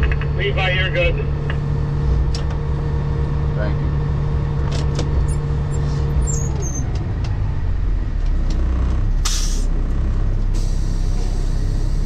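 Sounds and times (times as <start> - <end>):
diesel engine idling down: 0.0 - 12.0
air brake hiss: 9.2 - 9.7, 10.5 - 12.0.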